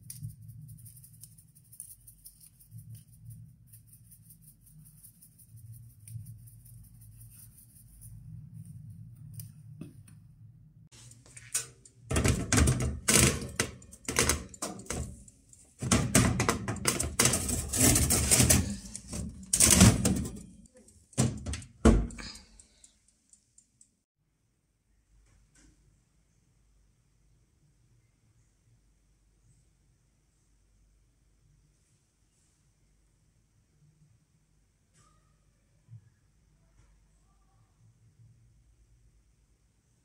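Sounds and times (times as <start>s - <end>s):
metal tray scraping oven rack: 11.6s - 15.2s, 15.8s - 20.5s.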